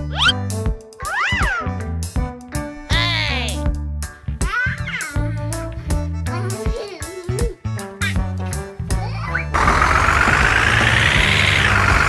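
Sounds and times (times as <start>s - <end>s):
upbeat children's music: 0.0s - 9.6s.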